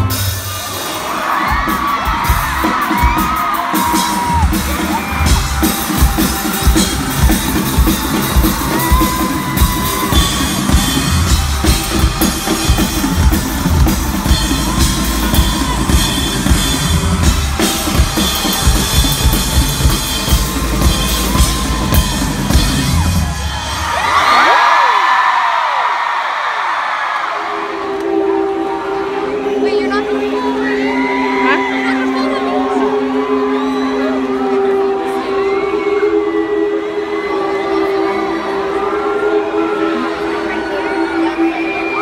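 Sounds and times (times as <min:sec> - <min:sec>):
drum kit playing fast: 0:00.0 - 0:24.6
crowd screaming: 0:00.0 - 0:42.0.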